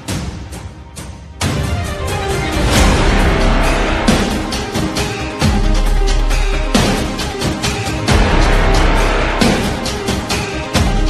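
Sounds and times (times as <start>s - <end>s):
electronic theme music: 0.0s - 11.0s
heavy bass hits: 8.1s - 11.0s.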